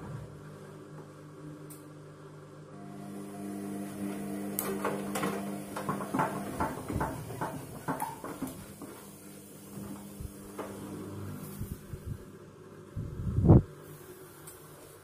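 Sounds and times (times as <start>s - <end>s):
washing machine drum motor hum: 2.8s - 12.4s
laundry knocking against drum: 5.8s - 8.8s.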